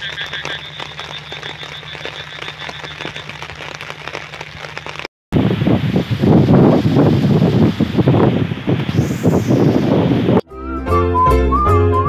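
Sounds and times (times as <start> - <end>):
frogs calling: 0.0 - 5.0
scattered clicks: 0.0 - 5.1
wind buffeting microphone: 5.4 - 10.4.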